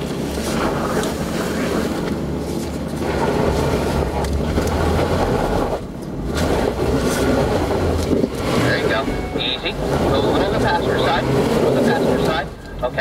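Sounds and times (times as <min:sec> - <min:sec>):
car engine droning: 0:00.0 - 0:13.0.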